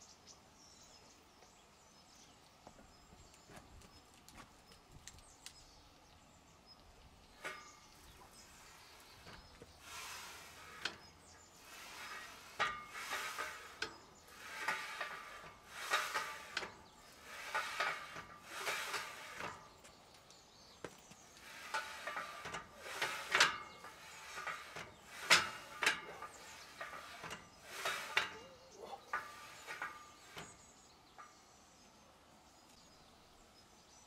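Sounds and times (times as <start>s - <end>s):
metal bar scraping on guide rods: 7.2s - 20.0s, 21.2s - 31.6s.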